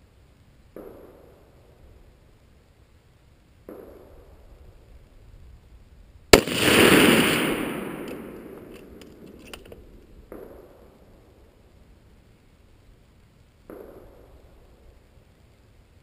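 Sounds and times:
rifle shot with rolling echo: 0.7 - 2.1, 3.6 - 5.0, 6.3 - 11.6, 13.6 - 15.0
faint clicks: 8.0 - 10.5.

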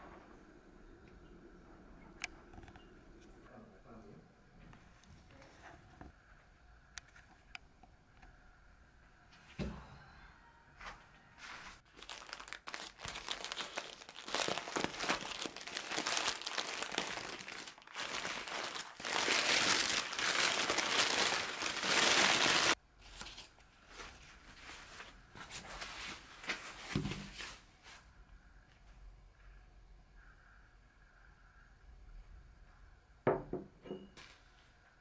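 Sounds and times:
tissue paper crinkling: 11.4 - 27.6.

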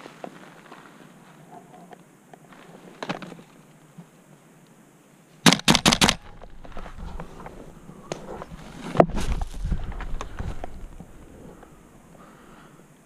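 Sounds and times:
airsoft gun firing: 5.4 - 6.4.

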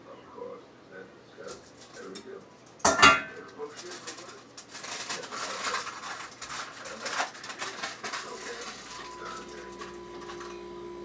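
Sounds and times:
electrical hum with faint whine: 0.0 - 11.0
kitchenware clicks and knocks: 2.8 - 3.4.

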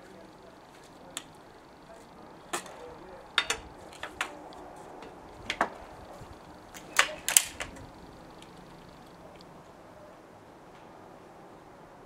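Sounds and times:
air rifle clicks and knocks: 6.8 - 7.9.

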